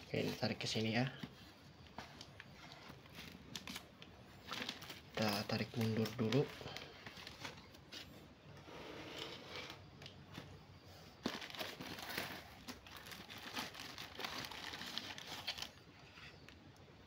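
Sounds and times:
plastic bags crinkling: 0:00.0 - 0:08.2, 0:09.6 - 0:15.9.

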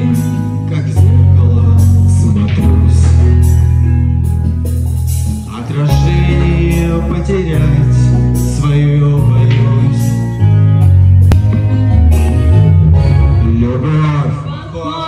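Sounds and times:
man singing into microphone: 0:00.0 - 0:03.6, 0:05.5 - 0:10.5
loud amplified backing track: 0:00.0 - 0:15.0.

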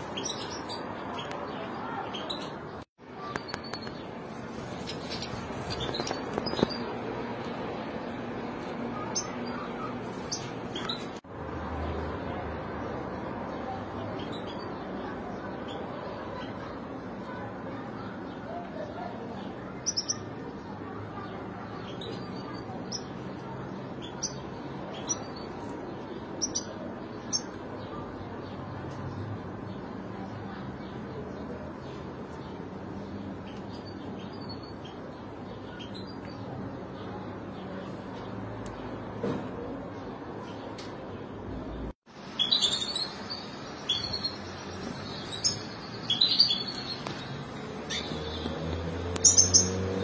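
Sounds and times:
finches chirping: 0:42.3 - 0:48.6.

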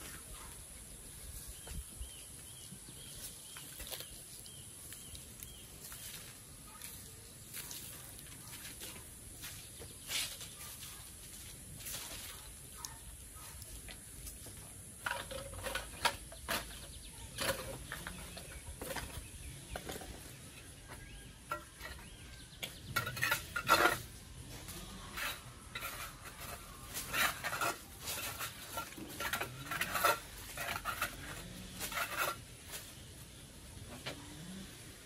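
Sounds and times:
broom sweeping concrete floor: 0:05.8 - 0:12.6.

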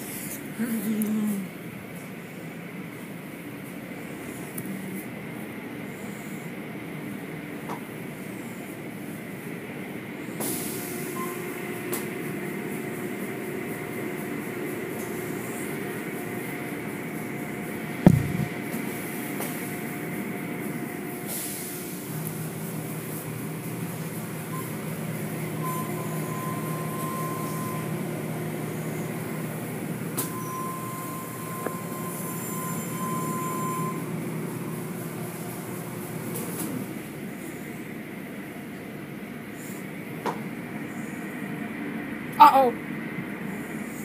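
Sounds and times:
car wash mechanical drone: 0:00.0 - 0:44.0
low hum: 0:18.0 - 0:18.7
loud thump: 0:18.1 - 0:18.6.

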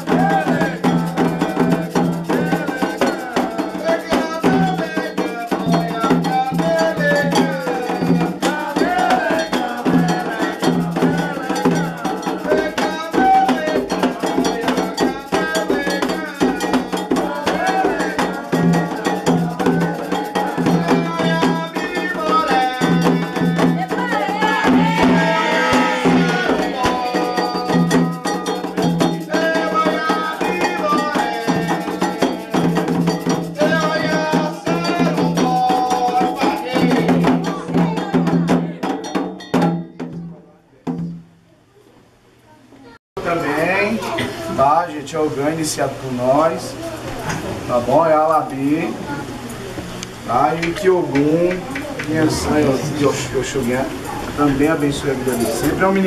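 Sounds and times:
voices singing: 0:00.0 - 0:39.3, 0:43.2 - 0:56.0
agogo bell struck: 0:00.0 - 0:40.4
percussion: 0:00.0 - 0:41.4, 0:43.2 - 0:56.0.

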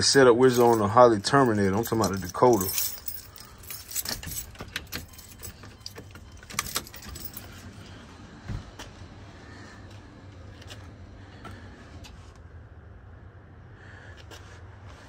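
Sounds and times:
handling noise: 0:00.0 - 0:07.8
keys jingling: 0:00.0 - 0:07.8.

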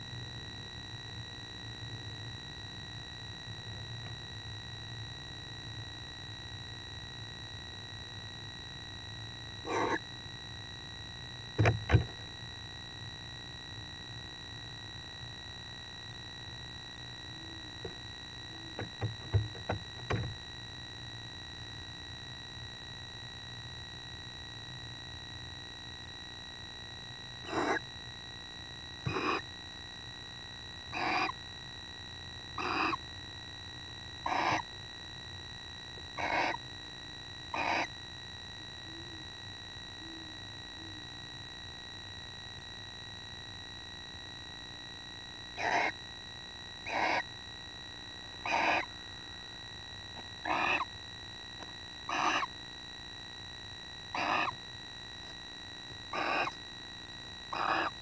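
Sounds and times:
owl hooting faintly: 0:09.6 - 0:10.1, 0:27.4 - 0:27.9, 0:29.0 - 0:29.5, 0:30.9 - 0:31.4, 0:32.5 - 0:33.1, 0:34.2 - 0:34.7, 0:36.1 - 0:36.7, 0:37.5 - 0:38.0, 0:40.0 - 0:41.2, 0:45.5 - 0:46.0, 0:46.8 - 0:47.4, 0:48.4 - 0:49.0, 0:50.2 - 0:51.0, 0:52.0 - 0:52.6, 0:54.1 - 0:54.7, 0:56.1 - 0:56.7, 0:57.5 - 0:58.0
barn owl screeching: 0:09.7 - 0:10.1, 0:27.5 - 0:27.9, 0:29.1 - 0:29.5, 0:30.9 - 0:31.4, 0:32.6 - 0:33.0, 0:34.2 - 0:34.7, 0:36.2 - 0:36.6, 0:37.5 - 0:37.9, 0:45.6 - 0:46.0, 0:46.9 - 0:47.3, 0:48.4 - 0:48.9, 0:50.4 - 0:50.9, 0:52.1 - 0:52.6, 0:54.1 - 0:54.6, 0:56.1 - 0:56.6, 0:57.5 - 0:58.0.

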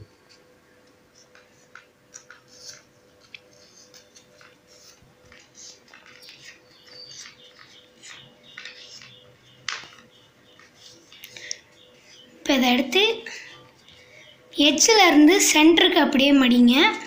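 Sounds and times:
faint steady hum: 0:00.0 - 0:17.0
paper rustling and crackling: 0:00.3 - 0:12.2.

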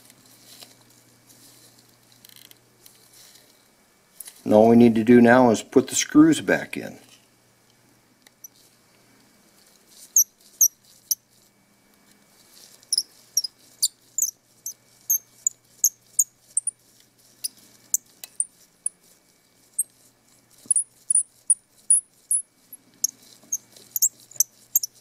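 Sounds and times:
screwdriver squeaks and ticks: 0:12.9 - 0:16.8, 0:20.7 - 0:25.0.

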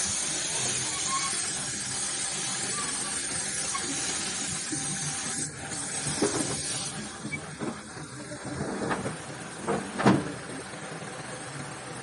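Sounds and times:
paint spray gun hissing: 0:00.0 - 0:07.3.

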